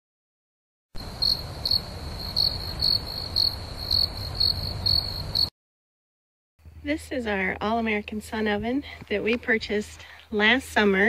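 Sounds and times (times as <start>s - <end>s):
crickets chirping: 1.0s - 5.5s.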